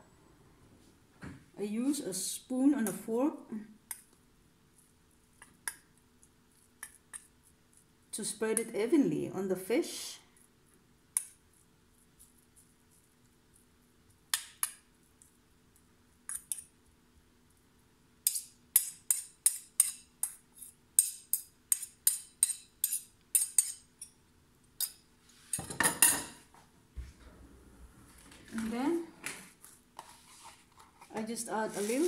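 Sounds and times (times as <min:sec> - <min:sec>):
rustling: 0:28.0 - 0:32.0.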